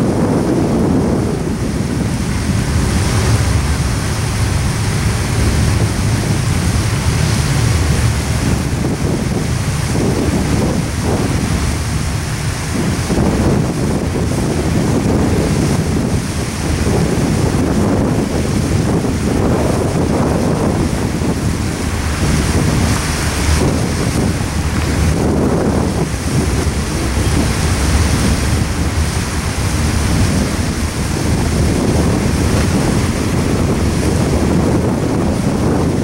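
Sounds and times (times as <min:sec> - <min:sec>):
train cars rumbling over bridge: 0:00.0 - 0:36.0
wind buffeting microphone: 0:00.0 - 0:36.0.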